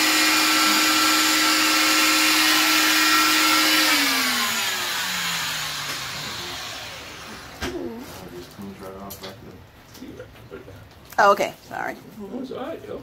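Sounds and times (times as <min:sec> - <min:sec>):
motor spinning down: 0:00.0 - 0:07.9
cast saw and vacuum whirring: 0:00.0 - 0:08.4.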